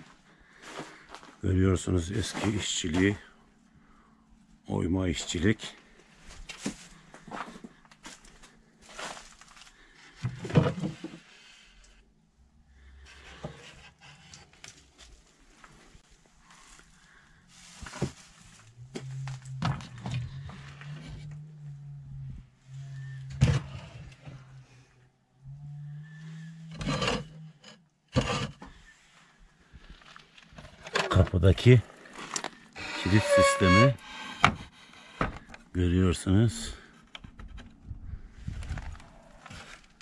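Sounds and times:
low steady hum: 14.2 - 27.7.

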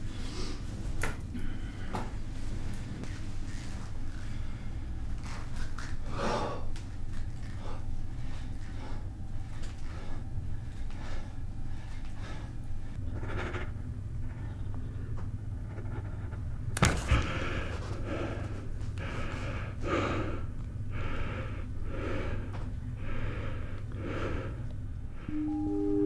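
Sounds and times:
man breathing hard: 1.3 - 2.2, 6.0 - 6.8, 7.4 - 12.9, 17.0 - 25.3.

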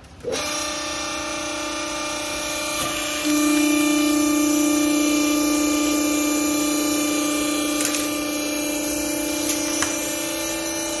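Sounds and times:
hydraulic motor humming: 0.0 - 11.0.

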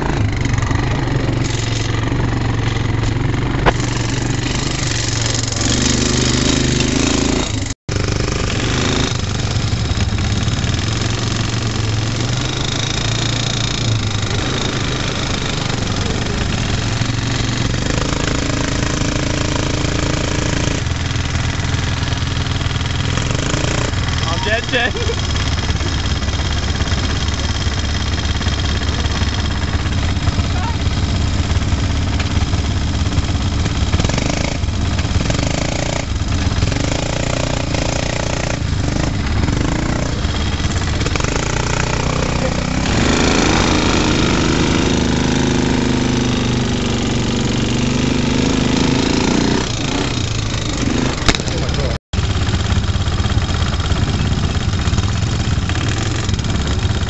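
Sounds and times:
quad bike engine: 0.0 - 57.0.

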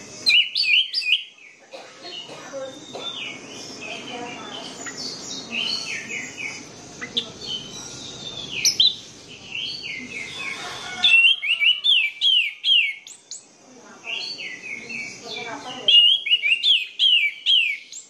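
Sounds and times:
thrush singing whistled phrases: 15.9 - 18.0.

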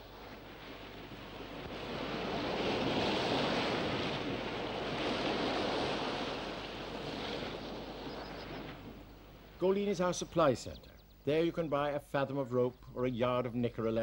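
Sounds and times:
sea waves washing in: 0.0 - 10.1.

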